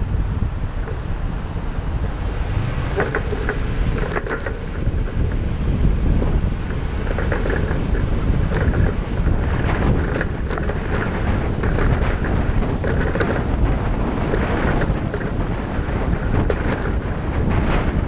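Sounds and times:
engine and road rumble: 0:00.0 - 0:18.0
wind rushing: 0:00.0 - 0:18.0
small rattling clicks: 0:02.8 - 0:18.0.

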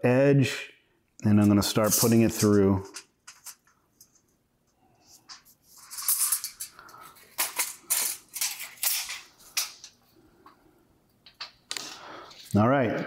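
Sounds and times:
copper foil crinkling and crackling: 0:05.0 - 0:10.0.

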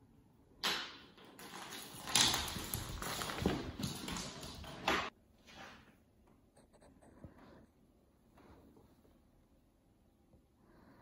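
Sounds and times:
plastic bottle clattering on floor: 0:00.6 - 0:05.1.

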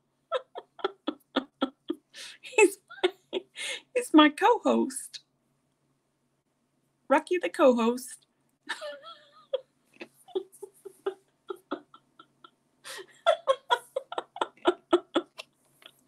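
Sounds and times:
woman laughing: 0:00.3 - 0:03.9, 0:08.7 - 0:15.4.

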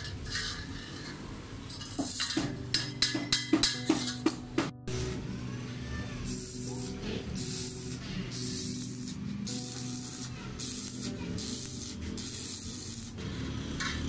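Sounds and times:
welding arc crackling and sizzling: 0:00.0 - 0:02.8, 0:06.2 - 0:14.0.

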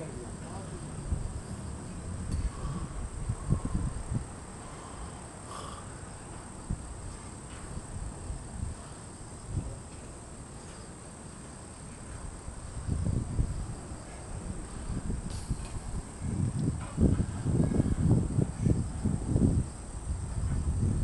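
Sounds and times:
low microphone rumbling: 0:00.0 - 0:05.2, 0:12.1 - 0:21.0
high-pitched insect trill: 0:00.0 - 0:21.0.

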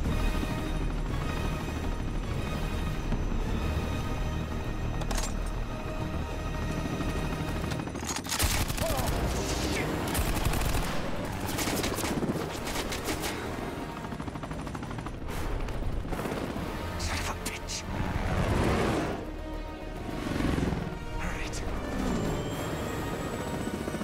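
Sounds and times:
machine-gun fire: 0:08.3 - 0:09.4, 0:10.1 - 0:12.1.

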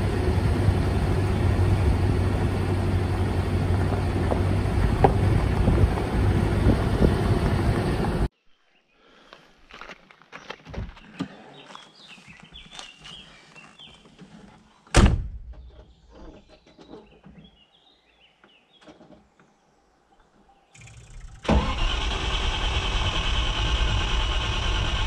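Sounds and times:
car engine starting and running: 0:00.0 - 0:08.3, 0:20.8 - 0:25.0
birds chirping: 0:06.5 - 0:21.3
loud thump: 0:14.9 - 0:15.6.

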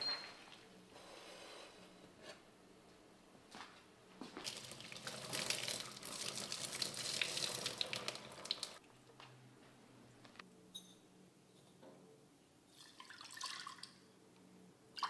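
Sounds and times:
water splashing into sink: 0:04.4 - 0:08.8.

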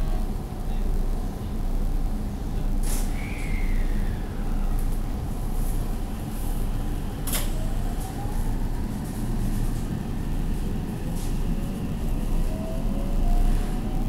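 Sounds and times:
train running rumble: 0:00.0 - 0:14.0
train traction motor whine: 0:00.0 - 0:14.0.

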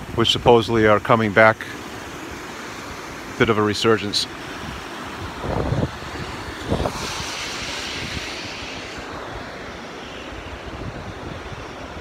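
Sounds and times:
river water rushing over dam: 0:00.0 - 0:12.0
wind thumping microphone: 0:04.7 - 0:12.0.

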